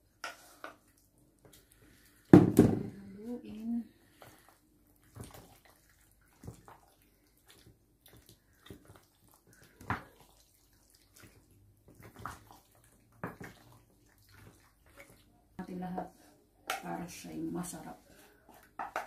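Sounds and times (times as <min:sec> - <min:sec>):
macaroni squelching: 0:03.9 - 0:15.5.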